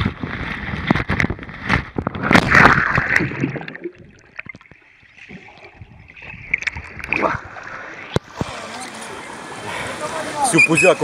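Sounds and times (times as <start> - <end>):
water splashing and rushing: 0.0 - 11.0.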